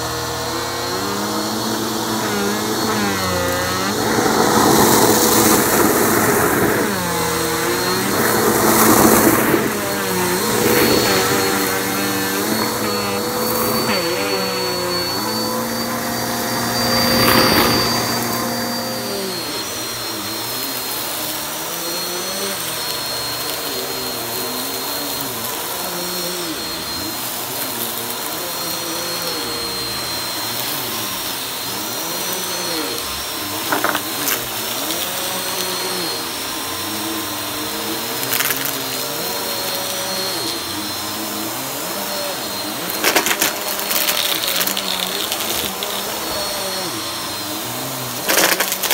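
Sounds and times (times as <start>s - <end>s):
vacuum cleaner running over carpet: 0.0s - 48.9s
debris clicking in vacuum: 33.6s - 35.7s, 38.2s - 39.0s, 42.9s - 46.4s, 48.2s - 48.9s.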